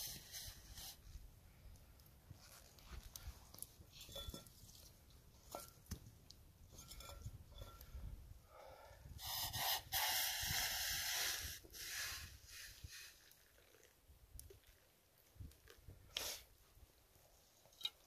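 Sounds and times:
hissing of poured hot liquid: 0:09.2 - 0:13.9.

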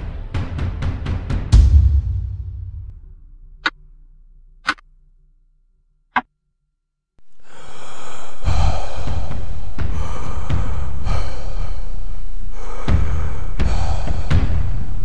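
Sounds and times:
dramatic drum and music hit: 0:00.0 - 0:03.4.

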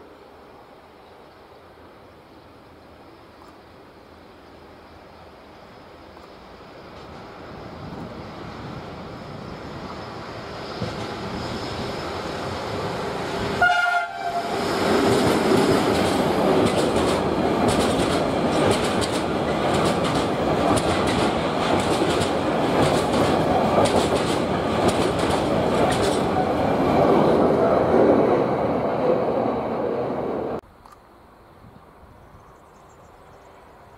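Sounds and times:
freight train passing: 0:00.0 - 0:33.9
train horn blast: 0:13.5 - 0:14.7
wheels clattering over rail joints: 0:15.1 - 0:26.6.

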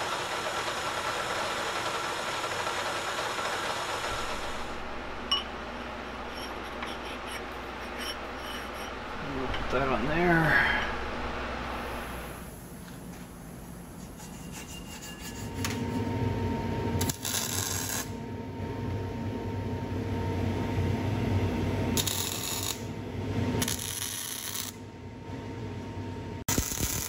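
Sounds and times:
metal lathe humming: 0:00.0 - 0:12.1
scraping of cutting metal: 0:05.3 - 0:09.1, 0:14.2 - 0:15.8.

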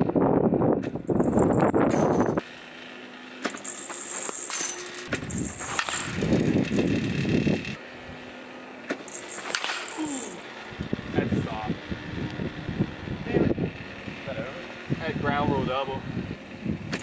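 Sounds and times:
wind gusts on microphone: 0:00.0 - 0:02.4, 0:05.2 - 0:07.8, 0:10.7 - 0:17.0.

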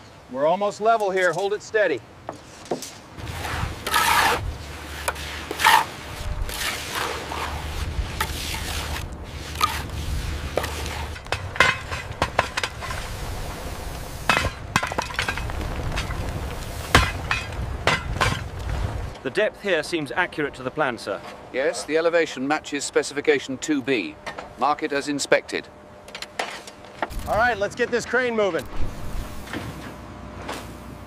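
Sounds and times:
low rumble: 0:03.2 - 0:19.2.

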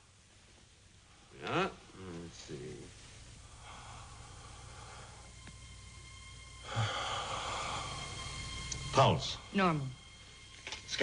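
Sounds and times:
amplified noisy breathing: 0:03.0 - 0:08.9.

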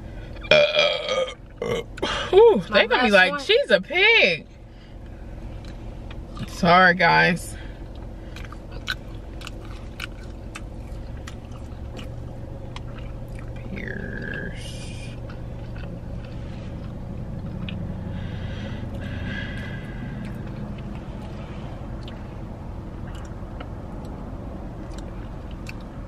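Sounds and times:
low hum inside car: 0:00.0 - 0:26.0
chewing food: 0:05.5 - 0:06.6, 0:07.8 - 0:26.0.

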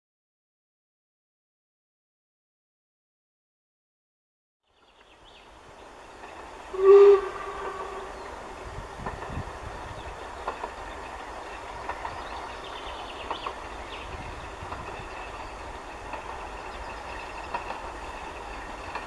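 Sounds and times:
distant steam locomotive running: 0:04.8 - 0:19.0.

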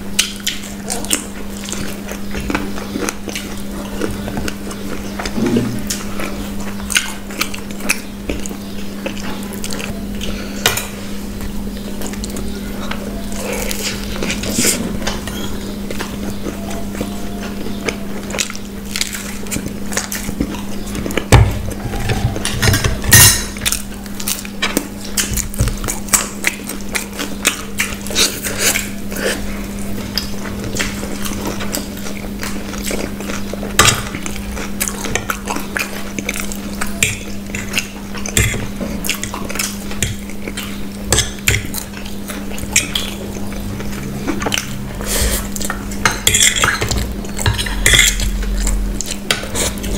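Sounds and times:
chewing food: 0:00.0 - 0:49.9
low hum: 0:03.7 - 0:24.4, 0:42.0 - 0:49.9.

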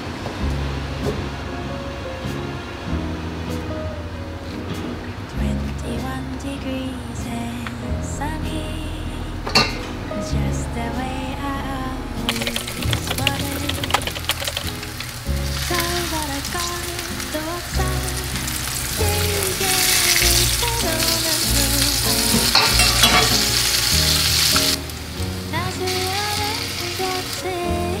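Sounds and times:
background music with bass: 0:00.0 - 0:28.0
food sizzling in a frying pan: 0:12.3 - 0:28.0.

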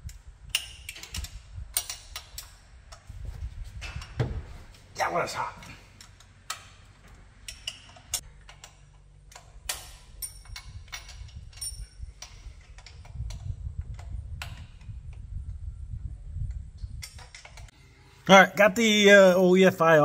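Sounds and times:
hand tools clicking and clinking: 0:05.6 - 0:13.1.

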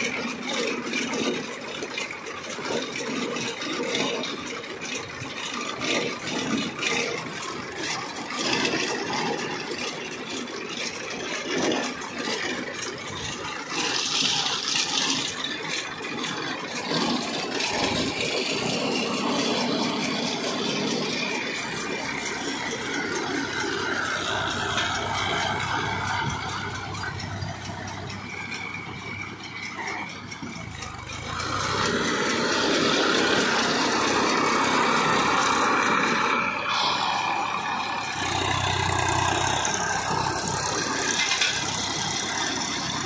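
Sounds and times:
tractor and baler running: 0:00.0 - 0:43.0.

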